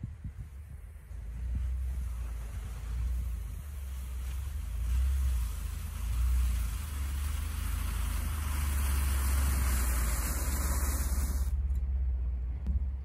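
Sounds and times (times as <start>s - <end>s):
pickup truck idling: 1.1s - 13.0s
rushing hiss: 1.9s - 11.6s.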